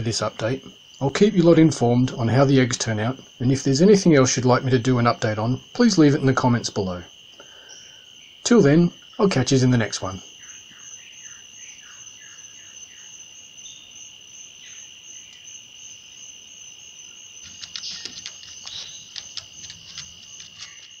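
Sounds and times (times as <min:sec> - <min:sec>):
crickets trilling: 0:00.0 - 0:21.0
sharp clicks and taps: 0:17.4 - 0:21.0.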